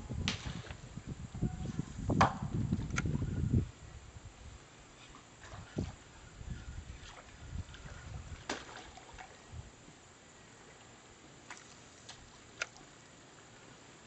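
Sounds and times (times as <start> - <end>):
faint steady hiss: 0.0 - 14.0
water sloshing: 6.9 - 9.6, 10.7 - 13.0.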